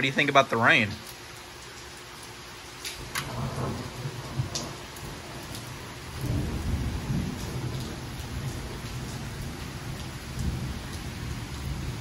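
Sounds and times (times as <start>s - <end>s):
heavy rain: 0.0s - 12.0s
low rolling thunder: 3.0s - 12.0s.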